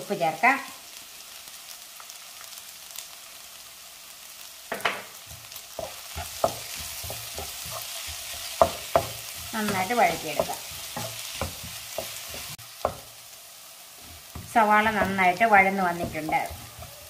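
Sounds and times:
onions sizzling in a pan: 0.0 - 17.0
wooden spatula scraping a pan: 5.4 - 13.0, 14.0 - 17.0.

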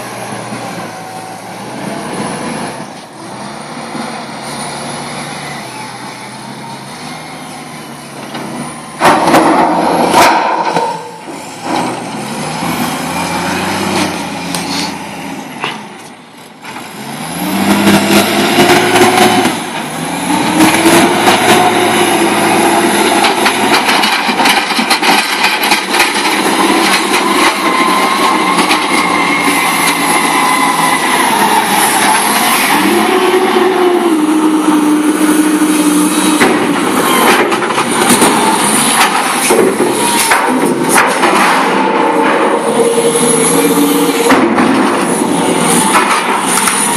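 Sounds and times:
forklift engine revving: 0.0 - 46.9
clanks and knocks: 8.2 - 12.0, 23.0 - 29.2, 36.2 - 42.8, 44.0 - 46.9.

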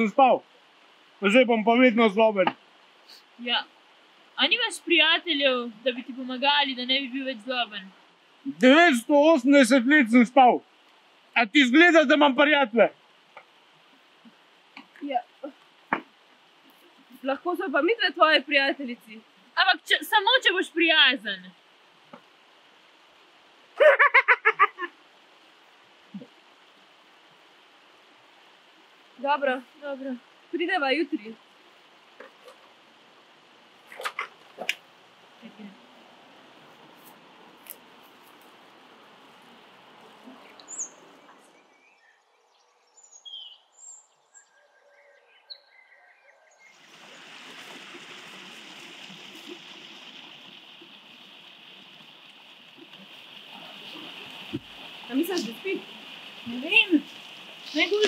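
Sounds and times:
steady rushing hiss: 0.0 - 42.0, 46.6 - 58.0
short high-pitched laugh: 23.8 - 24.9
bird chirps: 40.4 - 46.8.

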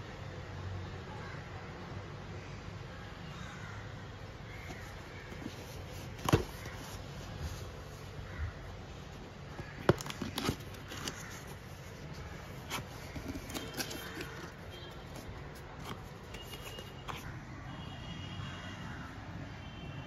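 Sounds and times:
cardboard flap clicking and rustling: 4.6 - 7.7, 9.5 - 17.3.

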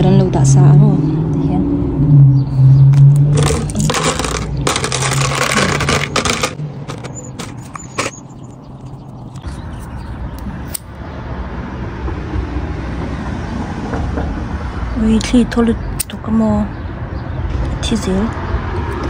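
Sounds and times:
plastic candles rattling and clicking: 3.2 - 8.2.

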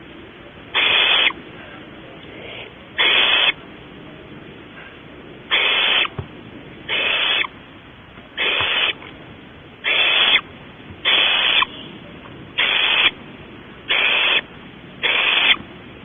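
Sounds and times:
owlets hissing begging call: 0.7 - 3.7, 5.5 - 6.2, 6.9 - 7.6, 8.4 - 9.0, 9.8 - 12.0, 12.6 - 13.2, 13.8 - 15.6.

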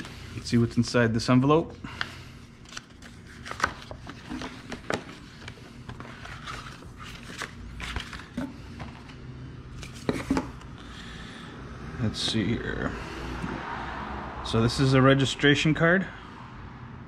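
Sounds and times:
plastic envelope rustling: 2.5 - 10.6.

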